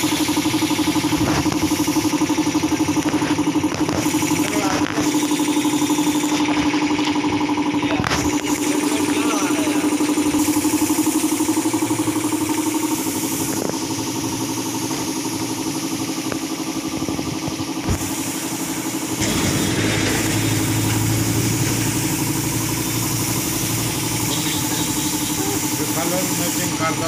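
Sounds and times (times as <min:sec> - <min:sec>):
air compressor running: 0:00.0 - 0:27.0
deep hum: 0:18.6 - 0:25.9.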